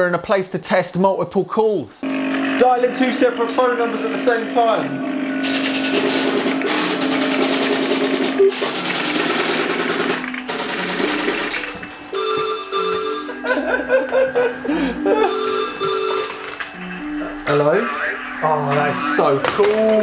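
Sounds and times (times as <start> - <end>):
telephone bells ringing: 11.6 - 17.9
double-pulse ringing tone beeps: 15.2 - 17.4.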